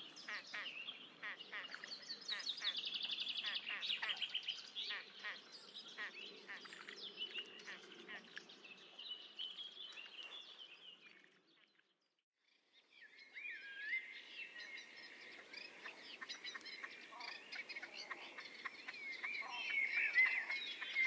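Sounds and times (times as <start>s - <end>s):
small birds chirping: 12.8s - 21.0s.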